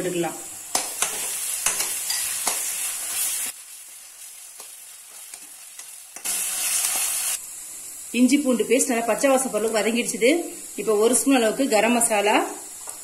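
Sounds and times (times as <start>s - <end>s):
food sizzling in hot oil: 0.0s - 13.0s
spatula clicking on pan: 0.7s - 2.7s.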